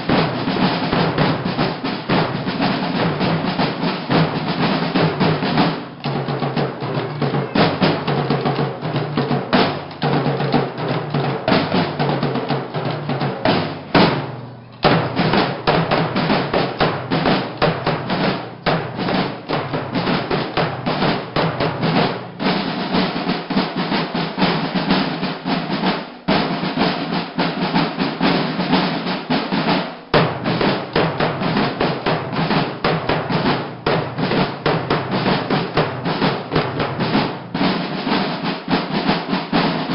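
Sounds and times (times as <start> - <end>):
snare drums playing march cadence: 0.0 - 39.9.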